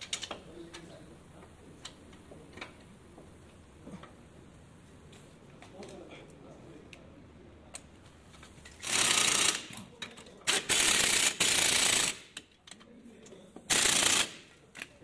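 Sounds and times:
impact wrench hammering: 10.5s - 12.4s, 13.7s - 14.4s.

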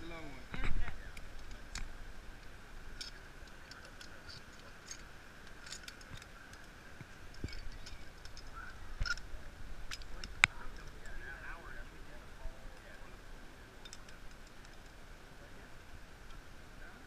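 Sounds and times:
metallic clicks of harness gear: 3.0s - 6.7s, 13.8s - 15.0s.

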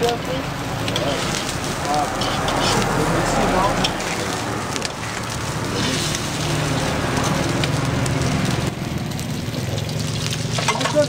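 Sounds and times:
omelette sizzling in oil: 0.7s - 11.0s
metal spatula scraping wok: 0.8s - 7.8s, 9.6s - 11.0s.

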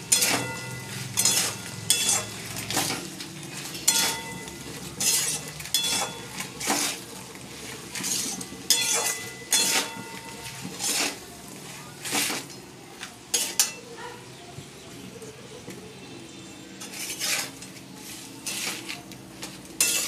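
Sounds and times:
faint frying sizzle: 0.0s - 20.0s
metal spatula clinking on pan: 0.1s - 2.9s, 3.8s - 7.0s, 8.0s - 11.2s, 13.3s - 13.8s, 19.8s - 20.0s.

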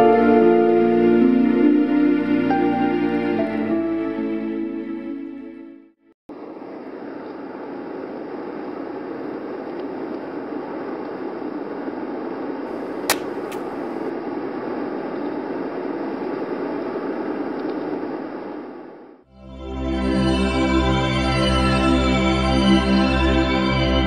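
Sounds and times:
traffic noise: 12.7s - 14.1s
sharp click: 12.8s - 14.1s.

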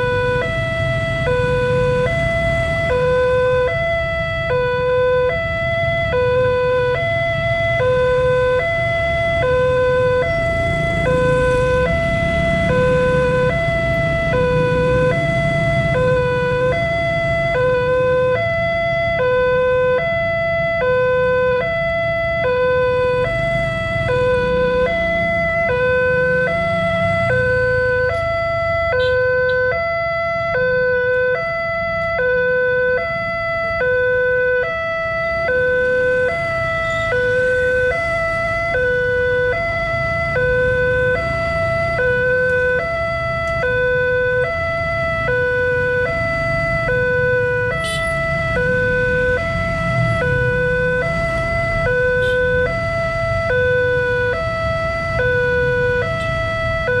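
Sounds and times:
low traffic rumble: 0.0s - 57.0s
two-tone crossing alarm: 0.0s - 57.0s.

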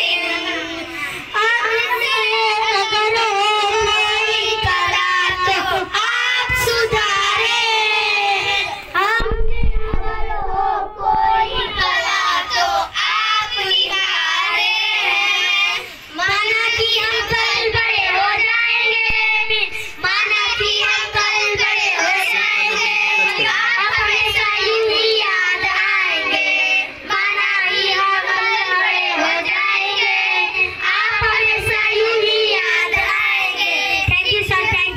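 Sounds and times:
boy singing: 0.0s - 34.9s
children singing into microphone: 0.0s - 34.9s
low microphone rumble: 8.4s - 13.6s, 19.0s - 21.0s.

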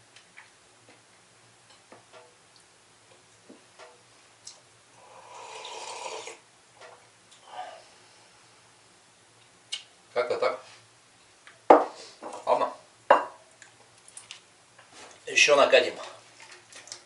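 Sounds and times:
loud sip from a mug: 5.2s - 6.4s.

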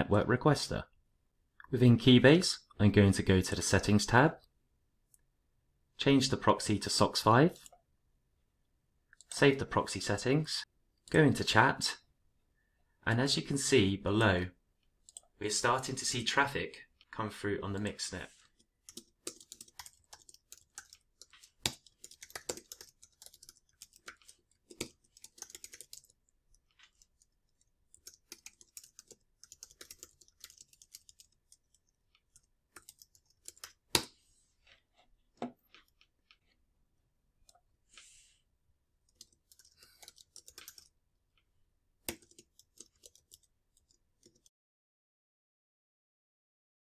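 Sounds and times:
typing on keyboard: 18.8s - 34.1s, 39.1s - 40.9s, 42.0s - 44.5s.

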